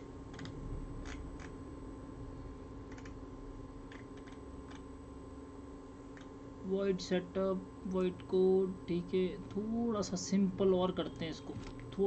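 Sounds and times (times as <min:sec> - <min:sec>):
steady low hum: 0:00.0 - 0:12.0
keyboard keystrokes: 0:00.3 - 0:01.5, 0:02.9 - 0:03.2, 0:03.9 - 0:04.8.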